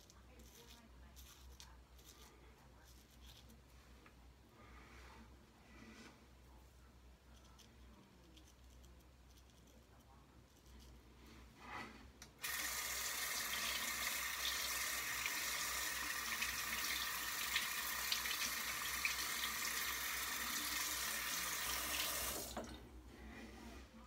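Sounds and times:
water running from sink tap: 12.4 - 22.8.

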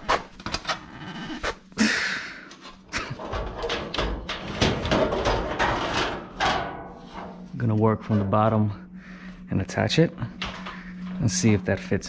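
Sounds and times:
sheet metal clicks and knocks: 3.1 - 7.0.

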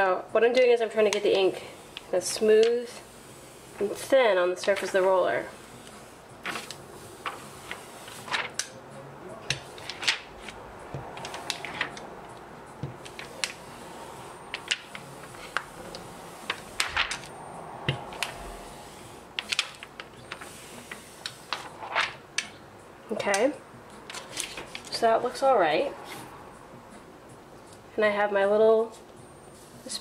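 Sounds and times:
brayer rolling through ink: 1.0 - 8.6, 9.4 - 22.2.

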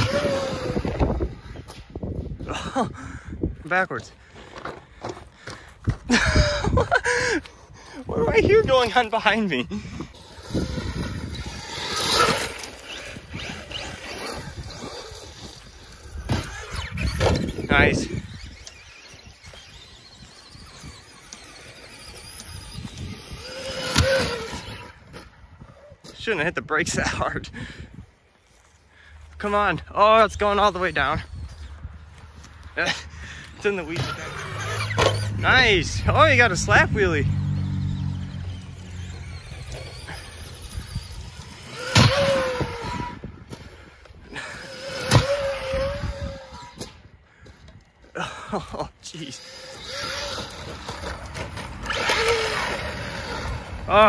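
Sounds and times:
electric motor whining: 0.0 - 2.0, 8.0 - 25.9, 33.4 - 47.9, 49.1 - 54.0.

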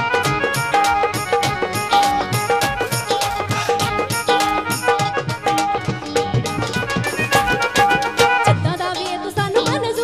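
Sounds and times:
repeating folk melody riff: 0.0 - 9.9
steady drum beat: 0.0 - 10.0.

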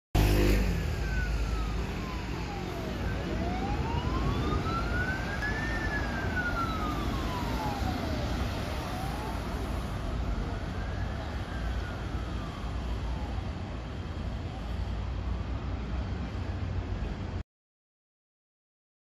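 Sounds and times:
ambulance siren wailing: 0.2 - 15.4
vehicle and traffic rumble: 0.2 - 17.4.

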